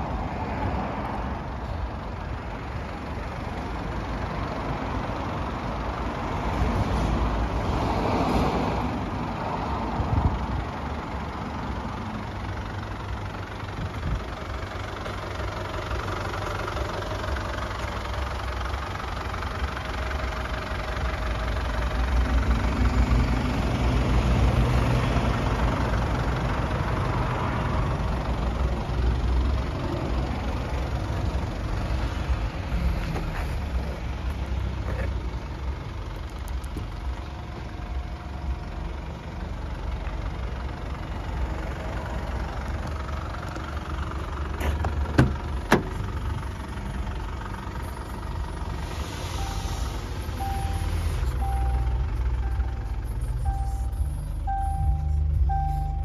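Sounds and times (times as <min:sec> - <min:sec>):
diesel engine idling: 0:00.0 - 0:56.0
car door clicks: 0:44.6 - 0:46.0.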